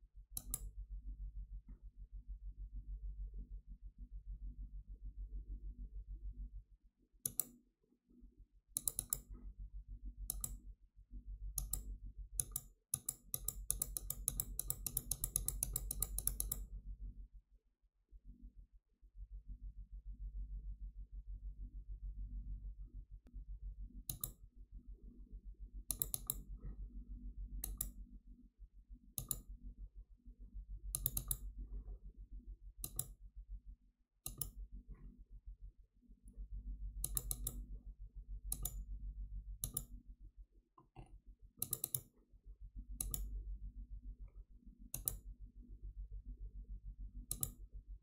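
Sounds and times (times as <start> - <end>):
low steady hum: 0.0 - 17.5, 18.1 - 48.0
mouse button clicks: 0.4 - 0.7, 34.2 - 34.6.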